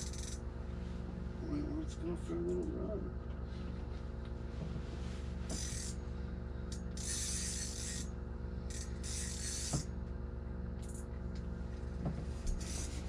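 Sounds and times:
fishing reel drag buzzing: 0.0 - 0.4, 5.5 - 6.1, 6.7 - 9.9, 12.4 - 13.0
steady low hum: 0.0 - 13.0.

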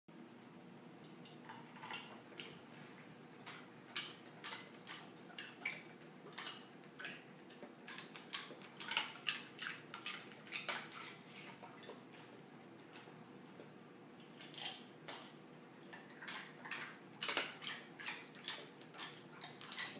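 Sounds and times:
dog crunching ice cubes: 7.6 - 12.0, 16.0 - 19.9.

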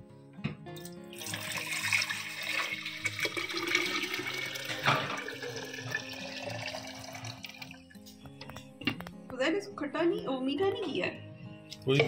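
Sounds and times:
liquid pouring into a jar: 1.1 - 7.9.

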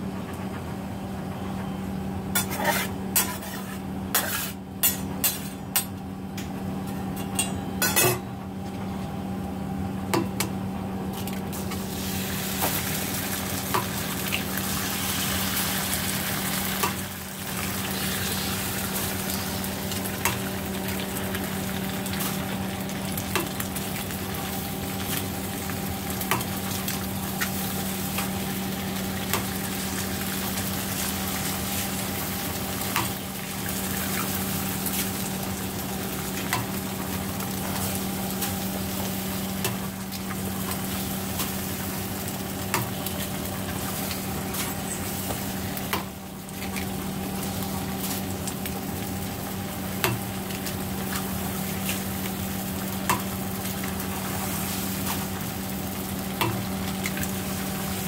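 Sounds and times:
food sizzling on griddle: 2.4 - 5.5, 11.5 - 58.0
spatula scraping on steel: 2.4 - 5.6.

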